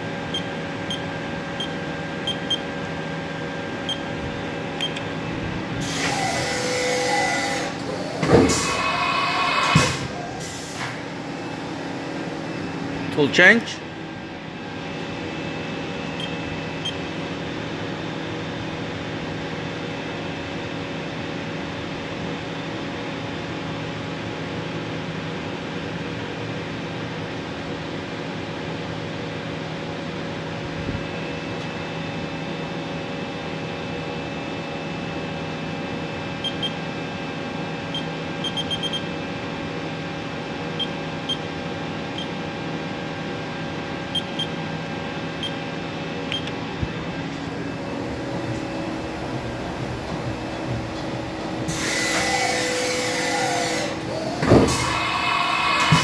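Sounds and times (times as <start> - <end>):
machine hum: 0.0 - 20.7, 29.9 - 56.0
machining center spindle whine: 30.8 - 56.0
short high beeps: 38.0 - 39.0.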